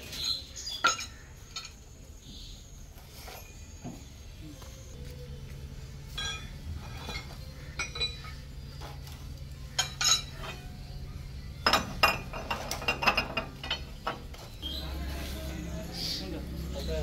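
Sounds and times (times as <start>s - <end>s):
metal tools clinking: 0.0s - 1.9s, 6.0s - 11.0s, 11.6s - 17.0s
low hum: 4.4s - 17.0s.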